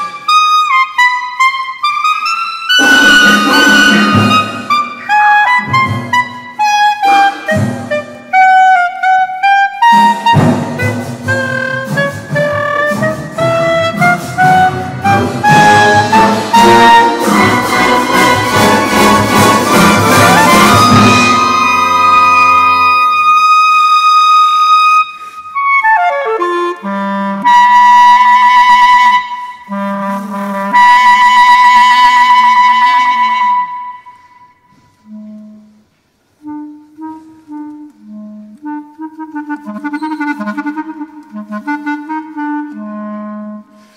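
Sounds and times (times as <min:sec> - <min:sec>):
solo clarinet: 0:00.0 - 0:43.9
orchestral chord: 0:14.4 - 0:22.9.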